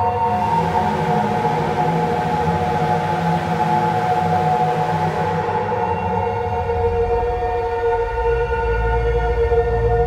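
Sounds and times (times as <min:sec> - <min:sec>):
synthesizer drone: 0:00.0 - 0:08.6.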